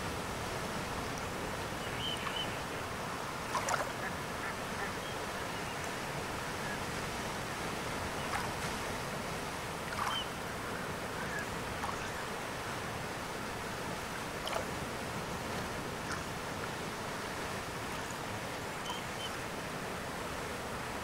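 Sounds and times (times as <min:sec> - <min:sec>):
surf washing onto beach: 0:00.0 - 0:21.0
seabirds calling: 0:01.5 - 0:08.6, 0:09.8 - 0:12.4, 0:18.8 - 0:19.5.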